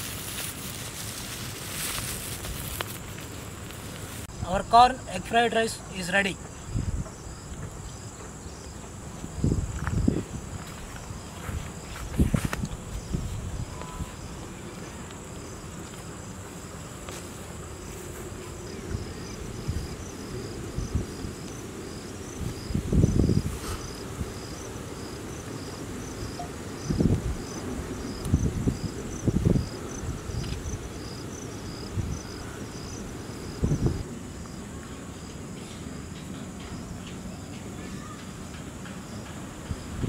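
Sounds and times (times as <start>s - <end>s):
crickets chirping: 0.0s - 40.0s
wind rumble on microphone: 6.5s - 8.0s, 9.0s - 15.8s, 18.1s - 34.1s, 39.6s - 40.0s.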